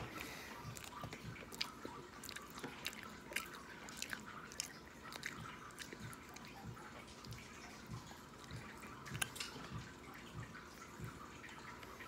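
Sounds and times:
person chewing food: 0.0s - 12.0s
wet lip smacks: 8.4s - 9.6s.

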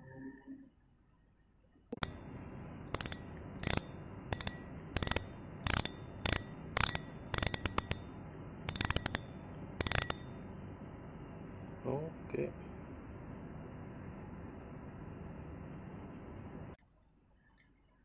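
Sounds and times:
fishing reel gear whirr: 2.9s - 8.1s, 8.7s - 10.3s
reel clicking: 2.9s - 8.1s, 8.7s - 10.3s.

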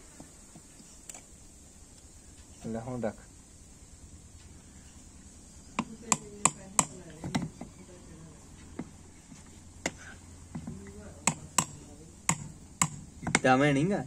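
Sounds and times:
stone knocking on metal: 9.8s - 13.5s.

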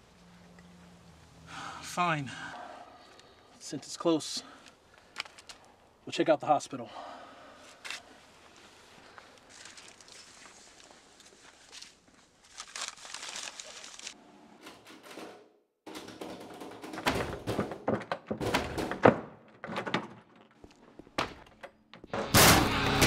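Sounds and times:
paper rustling: 9.4s - 14.2s
loud music: 22.4s - 23.0s.

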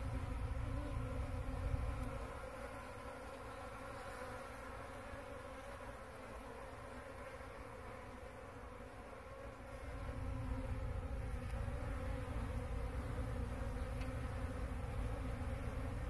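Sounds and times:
honeybees buzzing: 0.0s - 16.0s.

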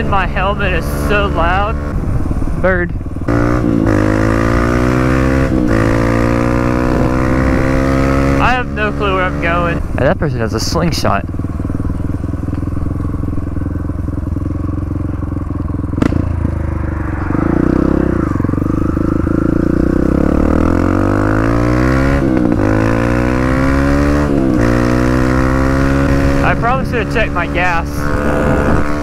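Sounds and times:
dirt bike engine revving: 0.0s - 2.4s, 3.2s - 29.0s
wind rushing over microphone: 0.0s - 10.3s, 16.0s - 29.0s
sharp tick: 12.4s - 12.7s.

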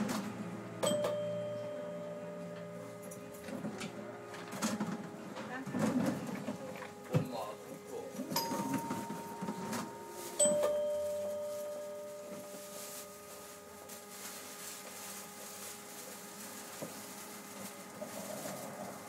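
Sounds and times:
faint steady hum: 0.3s - 19.0s
two-tone chime: 0.8s - 3.4s, 8.4s - 13.6s.

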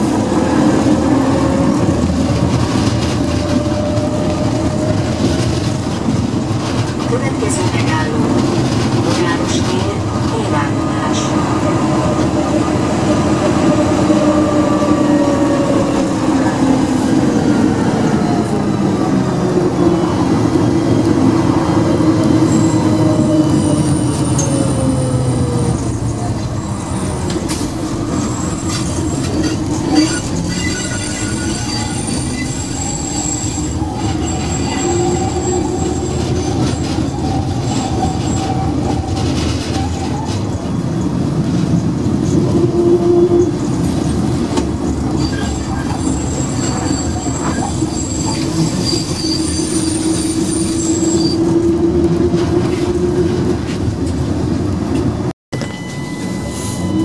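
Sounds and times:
tram wheels and motors rumbling: 0.0s - 57.0s
high wheel squeal: 28.1s - 38.7s, 45.1s - 51.7s, 55.6s - 57.0s.

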